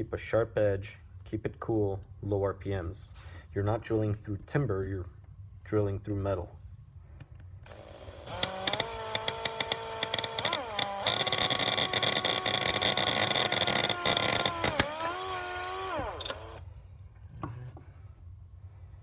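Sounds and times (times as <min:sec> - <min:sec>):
drill bit rasping through metal: 0:07.7 - 0:16.6
power drill motor whine: 0:07.7 - 0:16.6.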